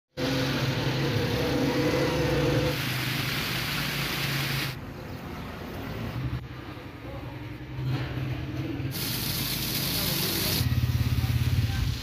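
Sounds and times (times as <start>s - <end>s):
loud rushing hiss: 2.6s - 4.8s, 8.9s - 12.0s
vehicle engine humming: 8.5s - 12.0s.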